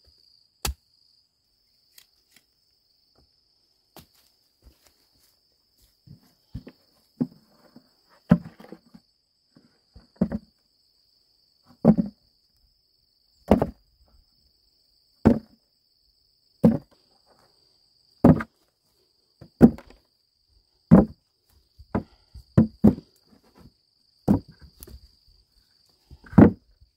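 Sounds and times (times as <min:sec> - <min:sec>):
roots thudding into plastic basket: 0:18.2 - 0:18.6, 0:19.5 - 0:20.0, 0:20.9 - 0:21.2, 0:24.3 - 0:25.1.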